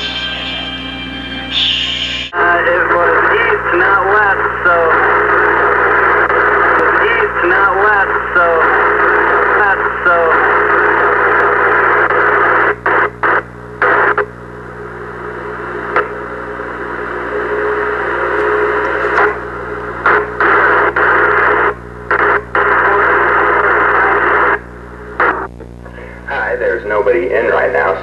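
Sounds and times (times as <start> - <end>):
steady low hum: 0.0 - 28.0
radio static hiss: 1.5 - 28.0.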